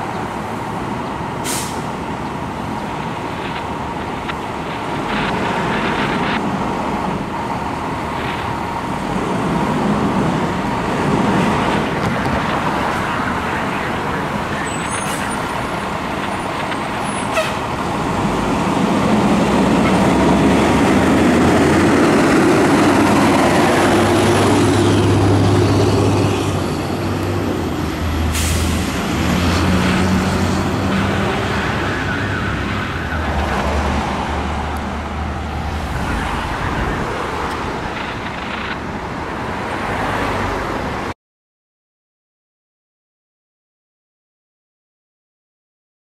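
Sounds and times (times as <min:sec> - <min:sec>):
fire engine diesel pulling away: 0:01.3 - 0:03.8, 0:17.7 - 0:35.0.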